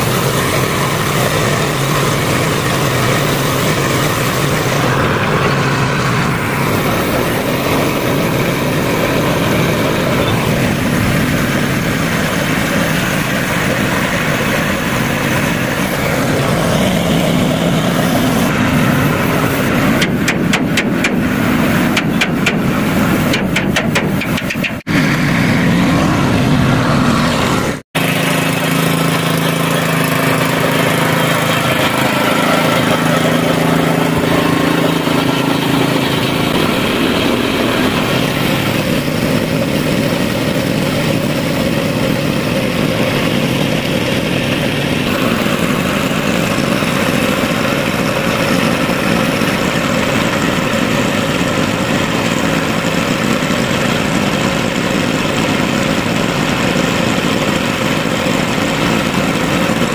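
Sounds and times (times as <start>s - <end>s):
small petrol engine running: 0.0s - 59.9s
spray gun hissing: 6.7s - 24.9s.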